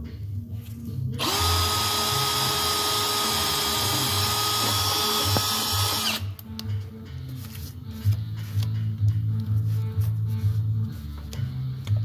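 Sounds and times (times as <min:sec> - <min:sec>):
cordless drill boring into sheet metal: 0:01.2 - 0:06.3.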